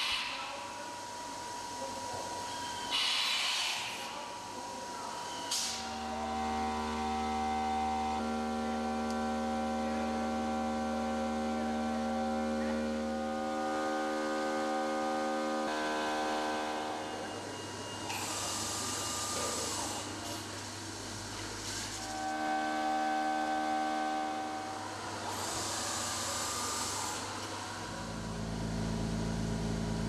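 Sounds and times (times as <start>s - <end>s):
machine spindle hum and whine: 0.0s - 30.0s.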